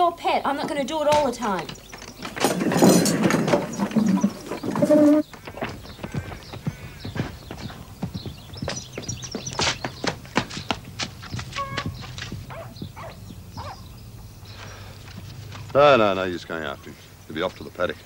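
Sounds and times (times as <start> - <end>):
horse hooves clopping: 0.4 - 17.8
loud clatter and commotion: 1.1 - 7.8.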